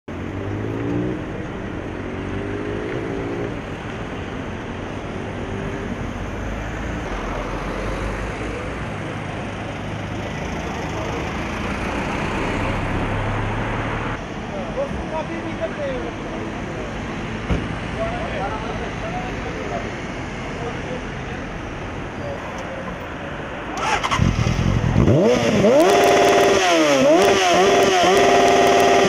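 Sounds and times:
cars driving past: 0.1 - 29.0
engine accelerating: 23.8 - 29.0.

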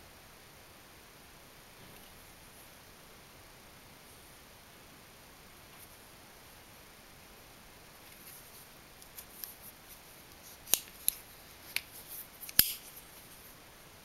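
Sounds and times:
folding knife metal clicks: 12.4 - 12.8.

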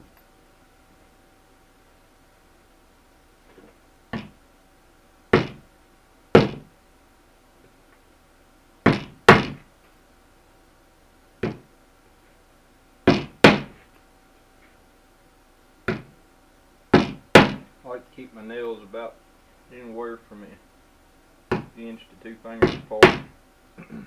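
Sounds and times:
hammer driving nails into wood: 5.4 - 5.6, 6.4 - 6.7, 8.8 - 9.6, 13.1 - 13.8, 16.9 - 17.7, 22.6 - 23.3.

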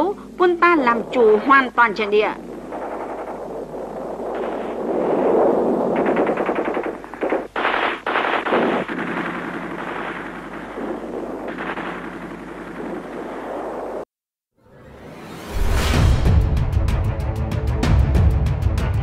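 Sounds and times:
machine-gun fire: 1.1 - 14.0.

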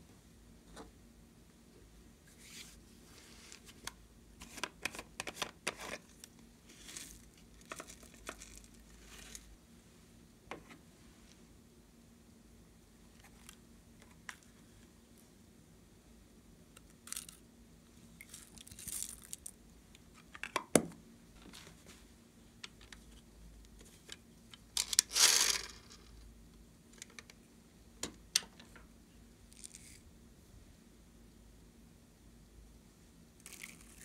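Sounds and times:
sequins rustling: 18.2 - 19.6.

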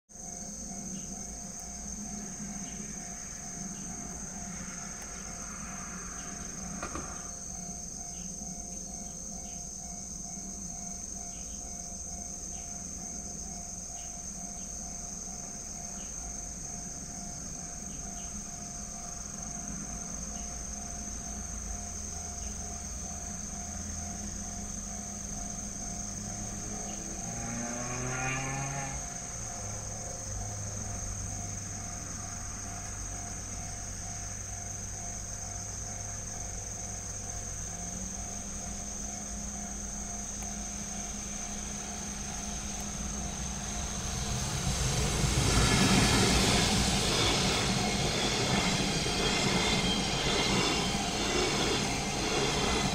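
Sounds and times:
insects chirping: 0.1 - 52.9
rising whine: 0.8 - 8.7, 21.6 - 33.6, 37.9 - 52.9
level-crossing alarm ringing: 28.9 - 52.9.

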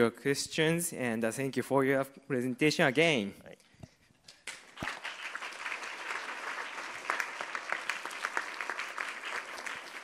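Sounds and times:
audience applause: 4.5 - 10.0.

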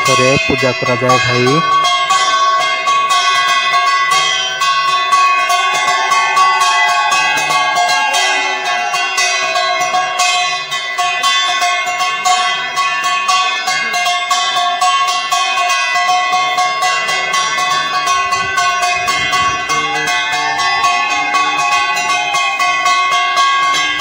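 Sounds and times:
held tones over fast strikes: 17.1 - 24.0.

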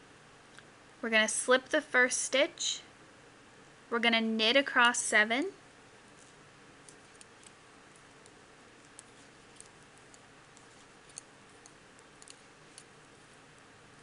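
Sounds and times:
low steady hiss: 0.0 - 14.0
knitting needles clicking: 6.2 - 12.9.

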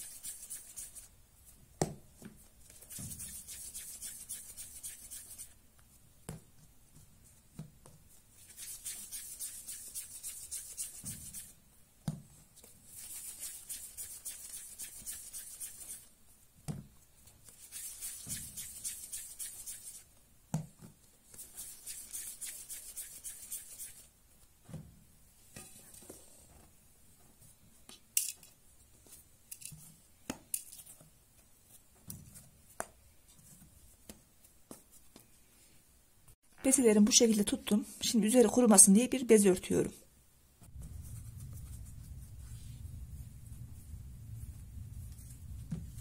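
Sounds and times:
dough rubbing between palms: 0.0 - 1.2, 2.4 - 5.6, 7.1 - 11.7, 12.4 - 16.2, 17.4 - 20.2, 21.2 - 24.2, 40.6 - 46.0.

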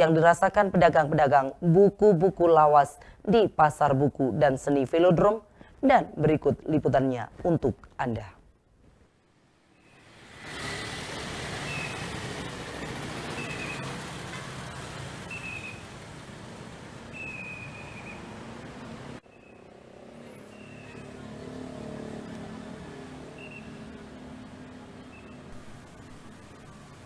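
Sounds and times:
motorcycle and car engines passing: 9.7 - 27.0.

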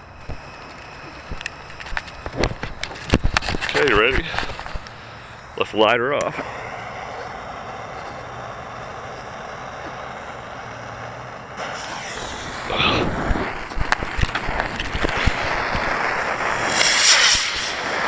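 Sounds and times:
wind noise: 0.0 - 4.9, 11.6 - 18.0
burning fuse hissing: 0.0 - 18.0
rocket motor roaring with crackles: 0.0 - 18.0.

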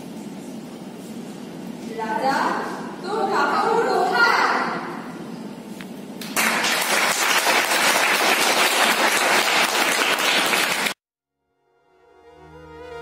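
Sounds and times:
audience clapping: 6.2 - 11.0.

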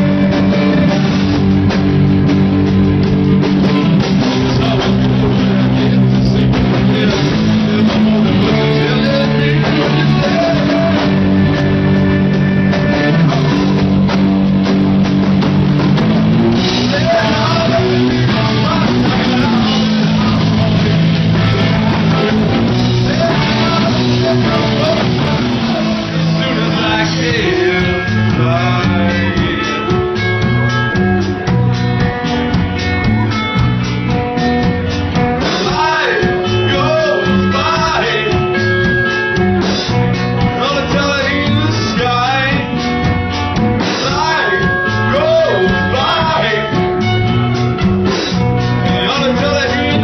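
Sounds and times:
bass guitar: 0.0 - 50.0
drum kit: 0.0 - 50.0
electric guitars: 0.0 - 50.0
person singing: 3.6 - 13.9, 16.5 - 30.7, 35.4 - 39.4, 40.4 - 42.9, 43.8 - 47.4, 48.8 - 50.0.

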